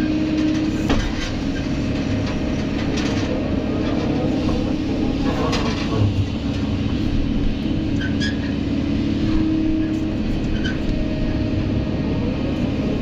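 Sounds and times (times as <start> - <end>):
excavator engine droning: 0.0 - 13.0.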